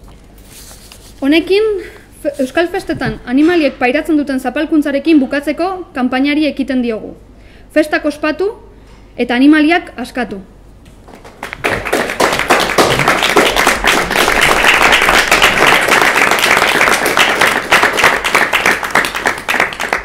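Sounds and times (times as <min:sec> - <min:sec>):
people applauding: 0:11.1 - 0:20.0.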